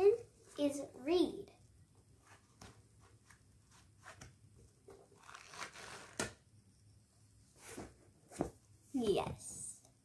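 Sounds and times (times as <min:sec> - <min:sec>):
book pages rustling and turning: 0:02.2 - 0:06.4, 0:07.6 - 0:08.6.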